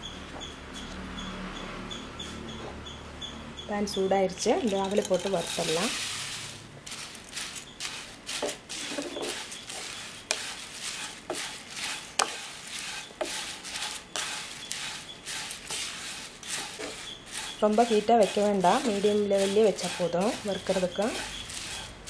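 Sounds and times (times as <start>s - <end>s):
dry flakes scraping in pan: 4.4s - 22.0s
spatula knocking pan: 7.8s - 21.9s.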